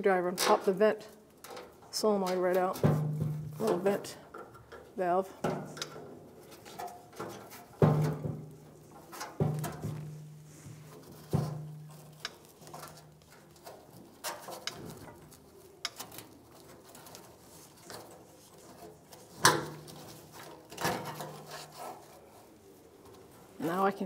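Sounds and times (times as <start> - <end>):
rubbing and creaking plastic: 5.6 - 24.0.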